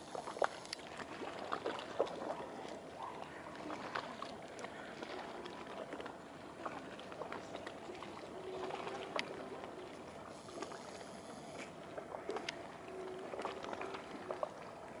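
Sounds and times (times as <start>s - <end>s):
faint hum: 4.6s - 15.0s.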